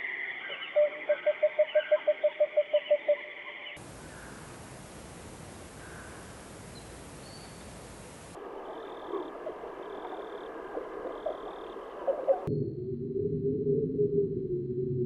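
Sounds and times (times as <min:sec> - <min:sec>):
steady hiss: 0:03.8 - 0:10.6.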